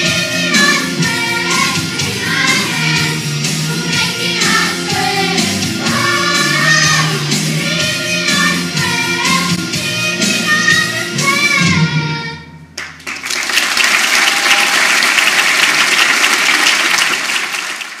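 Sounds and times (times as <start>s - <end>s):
young voices singing: 0.0s - 12.5s
backing music: 0.0s - 13.1s
audience applauding: 12.8s - 18.0s.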